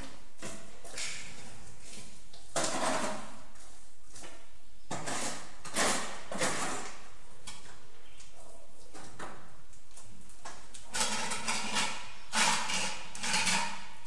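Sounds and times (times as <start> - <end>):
trowel scraping mortar: 4.9 - 7.1, 10.9 - 14.0.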